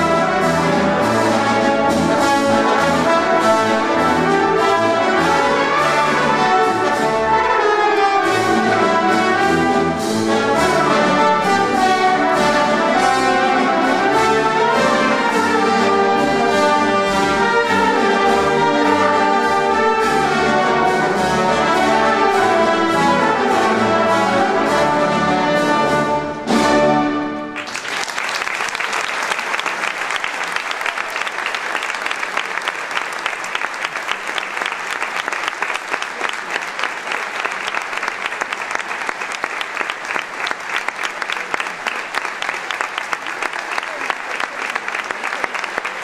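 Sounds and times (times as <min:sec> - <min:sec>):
wind band playing: 0:00.0 - 0:28.4
audience applause: 0:27.4 - 0:46.0.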